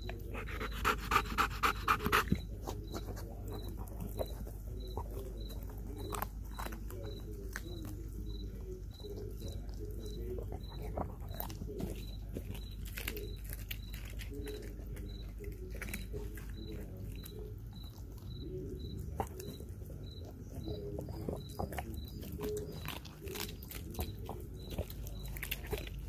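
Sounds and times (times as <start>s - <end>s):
dog chewing and crunching bones: 0.0s - 26.0s.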